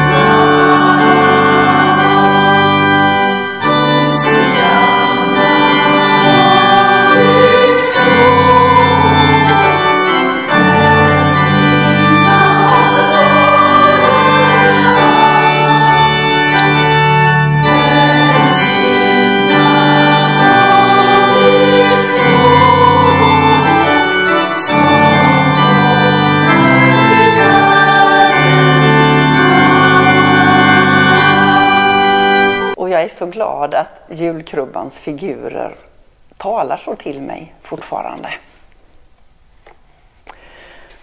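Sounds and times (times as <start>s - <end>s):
organ playing slow chords: 0.0s - 32.8s.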